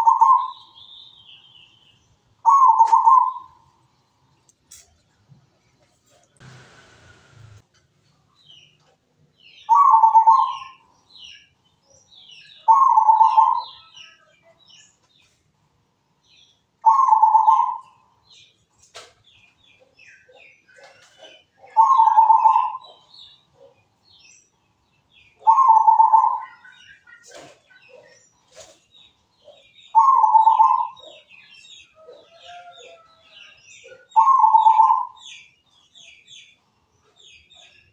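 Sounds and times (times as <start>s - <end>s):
dove cooing: 0.0s - 0.6s, 2.5s - 3.6s, 9.7s - 10.8s, 12.6s - 13.8s, 16.8s - 17.9s, 20.4s - 23.0s, 25.4s - 28.1s, 30.0s - 31.3s, 33.8s - 35.2s.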